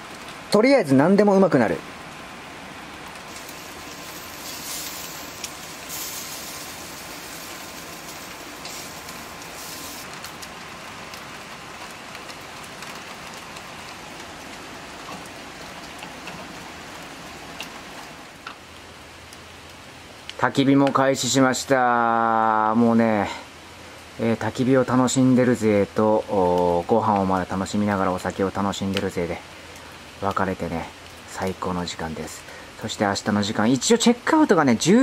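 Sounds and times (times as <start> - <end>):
steady rain falling: 0.0 - 35.0.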